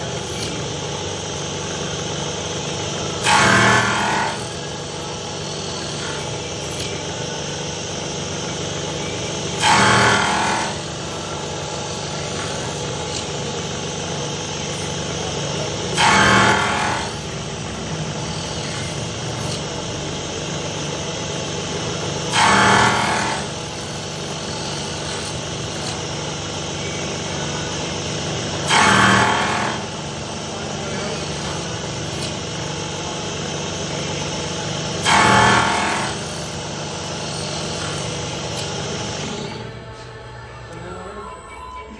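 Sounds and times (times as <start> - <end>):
milling machine humming: 0.0 - 41.9
disc cutter cutting: 3.2 - 4.6, 9.5 - 10.9, 15.9 - 19.7, 22.3 - 23.6, 28.6 - 30.1, 35.0 - 36.3.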